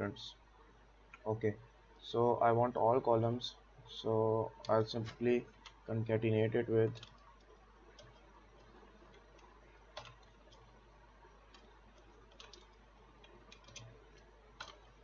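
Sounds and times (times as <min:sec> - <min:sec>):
low steady hum: 0:00.0 - 0:15.0
computer keyboard keystrokes: 0:06.9 - 0:10.7, 0:11.5 - 0:15.0.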